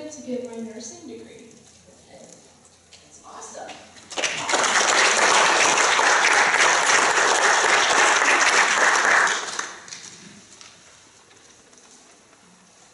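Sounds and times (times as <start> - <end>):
congregation applauding: 4.1 - 10.2.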